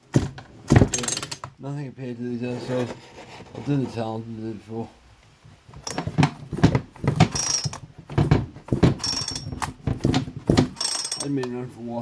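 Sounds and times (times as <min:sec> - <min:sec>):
chainsaw starter cord rasping: 0:07.3 - 0:07.8, 0:09.0 - 0:09.5, 0:10.8 - 0:11.4.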